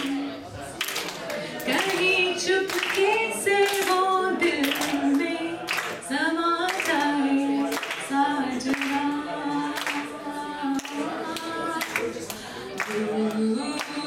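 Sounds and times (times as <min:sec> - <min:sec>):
hand claps: 0:00.8 - 0:04.0, 0:04.6 - 0:06.0, 0:06.7 - 0:08.1, 0:08.7 - 0:09.0, 0:09.8 - 0:10.1, 0:10.8 - 0:14.0
woman singing unaccompanied: 0:01.7 - 0:12.2, 0:12.8 - 0:14.0.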